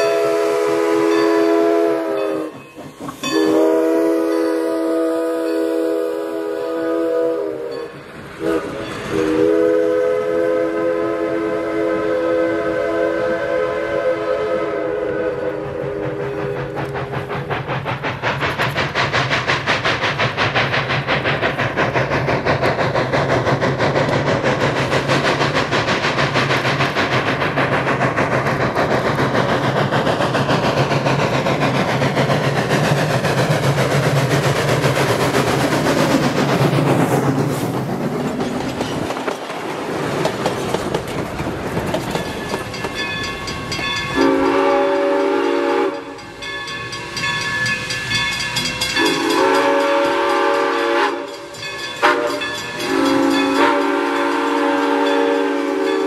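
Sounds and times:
steam whistle blasts: 0.0s - 17.0s, 44.1s - 46.3s, 48.9s - 56.0s
steam train passing: 0.0s - 56.0s.

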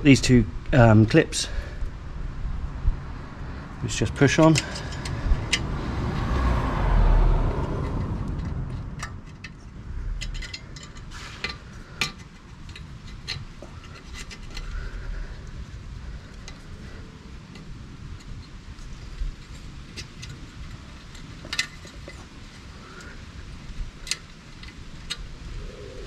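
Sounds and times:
passing vehicle rumble: 0.0s - 18.8s, 25.2s - 26.0s
metal clips clicking: 4.3s - 5.7s, 24.0s - 25.3s.

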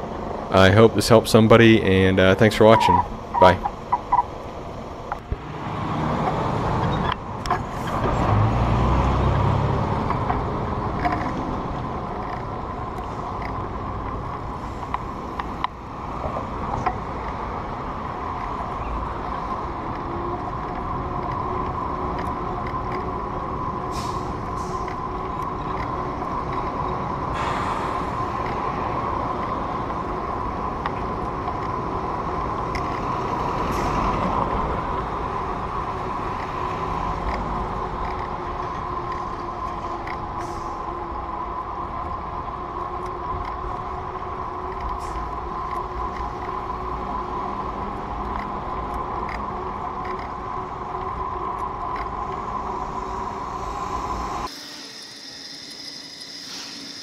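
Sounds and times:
tyres on road: 0.0s - 57.0s
constant hum: 10.0s - 54.6s.

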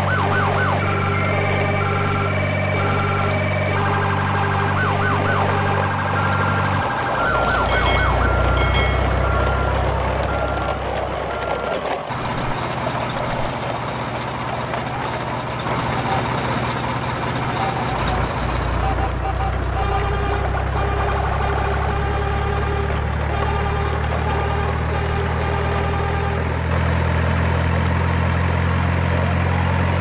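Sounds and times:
siren-like wails: 0.0s - 13.5s, 14.6s - 27.4s
truck engine drone: 0.0s - 30.0s
short beeping tones: 7.2s - 11.7s.

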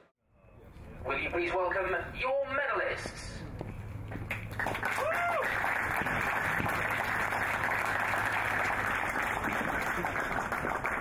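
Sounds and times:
audience applauding: 4.3s - 11.0s
crowd cheer: 4.6s - 11.0s.

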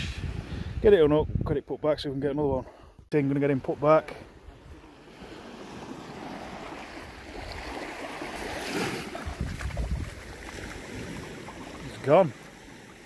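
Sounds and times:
wind buffeting microphone: 0.0s - 1.8s, 4.4s - 11.8s
sea waves washing on beach: 3.2s - 13.0s.

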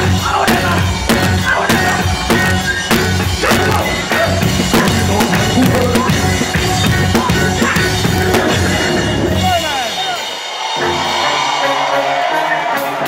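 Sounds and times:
heavy bass line: 0.0s - 9.5s
live reggae band: 0.0s - 13.0s
loud drum kit: 0.0s - 13.0s.

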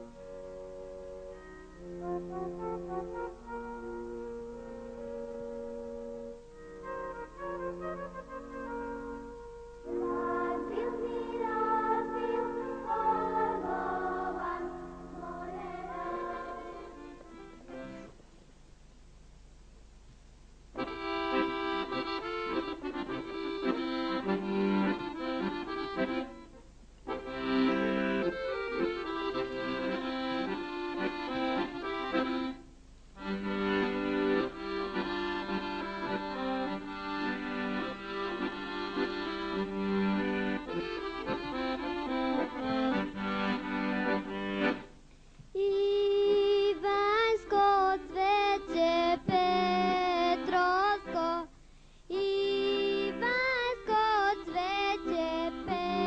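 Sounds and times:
accordion playing folk tune: 0.0s - 18.2s, 20.8s - 56.0s
girl singing: 9.9s - 17.4s, 45.6s - 56.0s.

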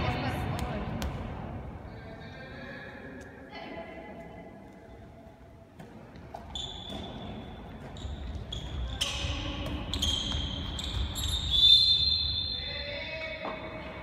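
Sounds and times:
sneakers squeaking: 4.7s - 14.0s.

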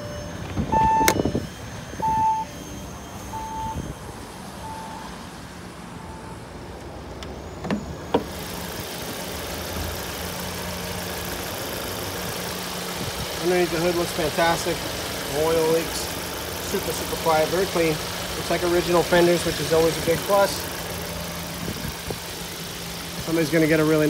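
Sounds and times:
car door warning chime: 0.0s - 5.2s
car engine idling quietly: 5.9s - 24.0s.

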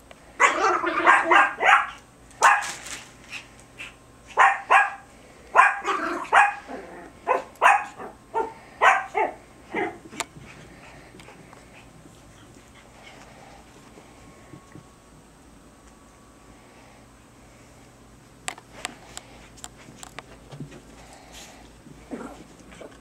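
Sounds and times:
puppies yapping: 0.4s - 5.0s.

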